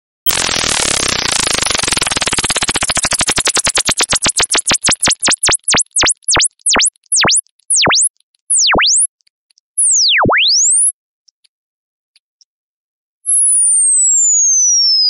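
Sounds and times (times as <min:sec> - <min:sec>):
electronic ringtone sweeping tone: 0:00.3 - 0:09.1, 0:09.8 - 0:10.9.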